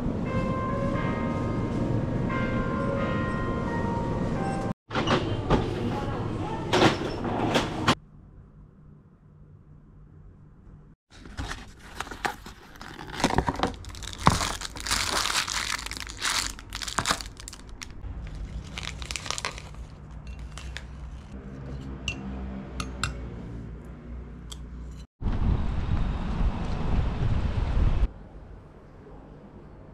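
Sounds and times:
cardboard and paper tearing: 11.1s - 19.9s
plastic wrapper crinkling: 11.2s - 21.0s
wind noise on microphone: 25.2s - 28.1s.

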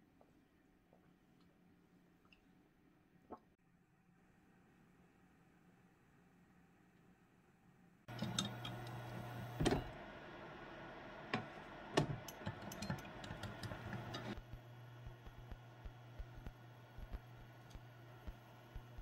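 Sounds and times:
low steady hum: 0.0s - 19.0s
kitchen things clicking on counter: 12.0s - 14.4s.

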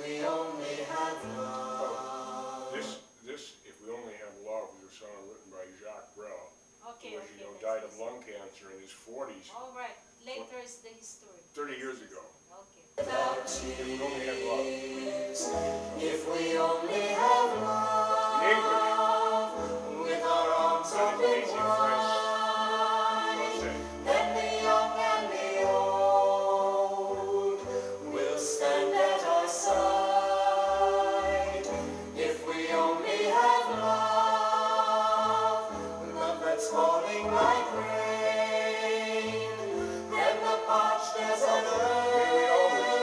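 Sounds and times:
choir singing a slow ballad: 0.0s - 3.0s, 13.0s - 43.0s.

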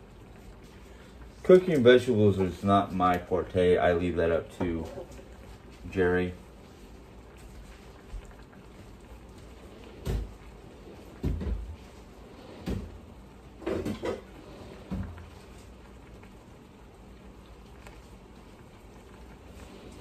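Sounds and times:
steaks simmering in frying pan: 0.0s - 20.0s
dull knocks and thumps: 11.2s - 11.8s.

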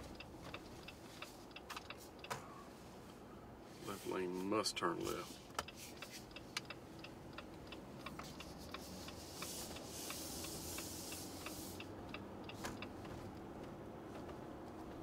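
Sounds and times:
turn signal clicking: 0.0s - 2.4s, 5.1s - 15.0s
low car rumble: 6.2s - 15.0s.

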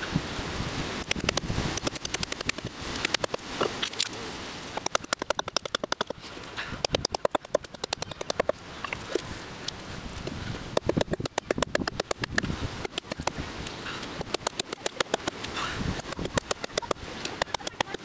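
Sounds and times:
axe chopping wood: 10.7s - 13.4s, 14.2s - 18.0s.

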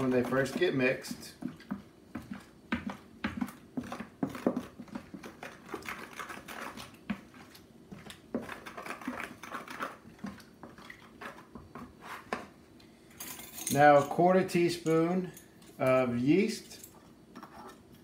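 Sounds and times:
spoon scraping bowl: 0.0s - 12.4s, 16.9s - 18.0s.

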